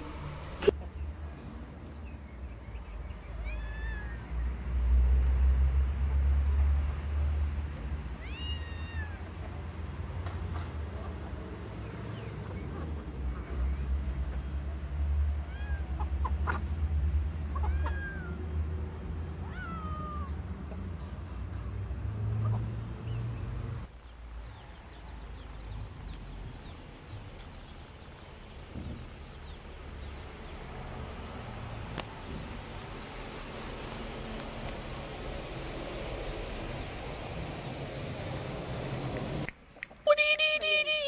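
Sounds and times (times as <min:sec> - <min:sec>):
kittens meowing: 0:03.3 - 0:04.2, 0:08.2 - 0:09.3, 0:17.5 - 0:18.5, 0:19.4 - 0:20.4.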